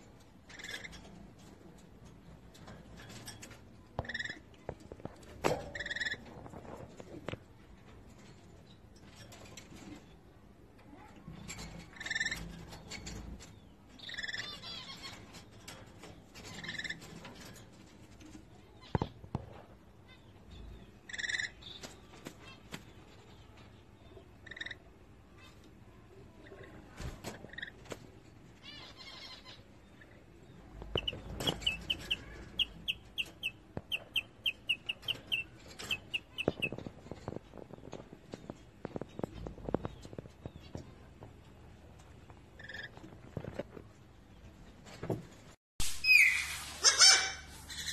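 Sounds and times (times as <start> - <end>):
lorikeet chirping: 31.0 - 36.8
parrot calls: 46.0 - 47.9.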